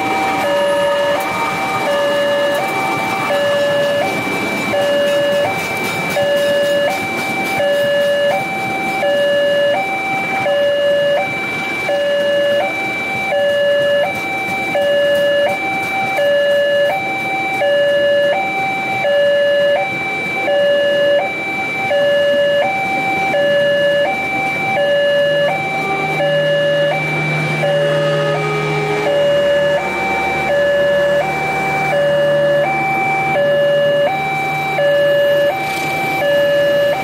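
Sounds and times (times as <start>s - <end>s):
train carriages rumbling: 0.0s - 20.9s, 21.7s - 37.0s
two-tone crossing alarm: 0.0s - 37.0s.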